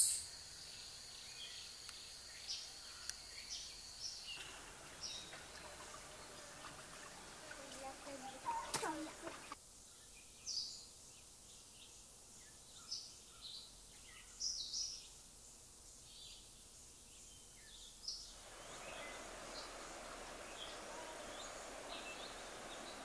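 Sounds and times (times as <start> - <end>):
birds chirping faintly: 0.0 - 23.0
faint steady hiss: 0.0 - 23.0
broad rushing noise: 18.4 - 23.0.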